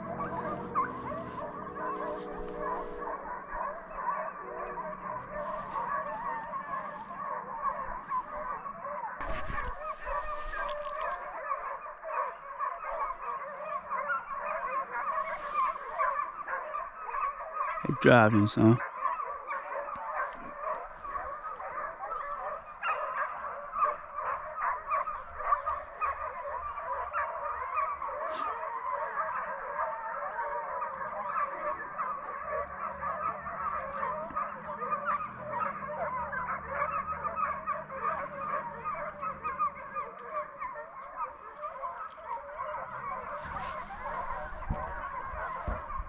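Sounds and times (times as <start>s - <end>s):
faint low hum: 0.0s - 8.6s
hounds baying: 0.0s - 46.0s.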